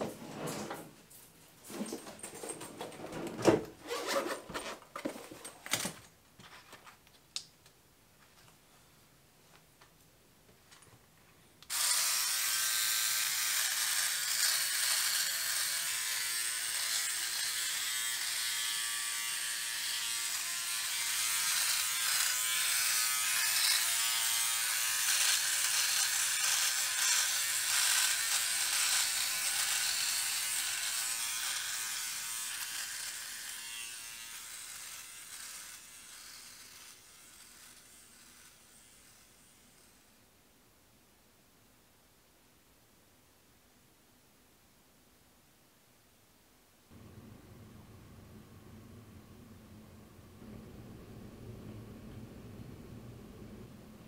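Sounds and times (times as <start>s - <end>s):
beard trimmer buzzing: 11.7s - 40.1s.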